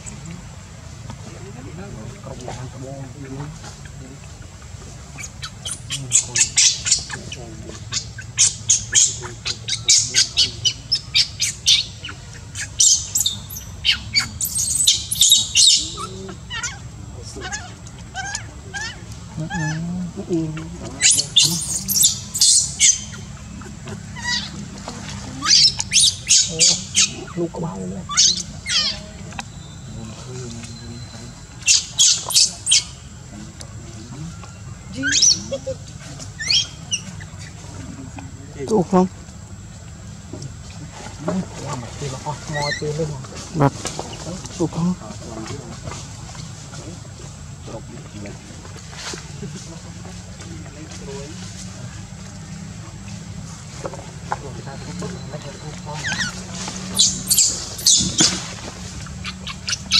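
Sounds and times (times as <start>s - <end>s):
infant monkey squealing: 5.0s - 19.9s, 20.6s - 24.7s, 25.3s - 27.4s, 28.0s - 29.1s, 31.0s - 33.1s, 34.9s - 37.6s, 42.2s - 43.1s, 54.8s - 59.9s.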